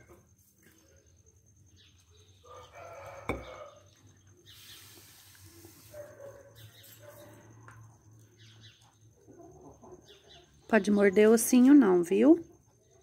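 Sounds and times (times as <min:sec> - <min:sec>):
rooster crowing: 0:02.4 - 0:03.9.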